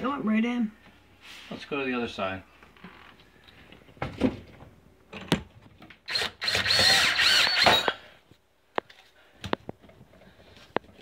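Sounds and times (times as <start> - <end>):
cordless drill driving screw: 6.1 - 8.0.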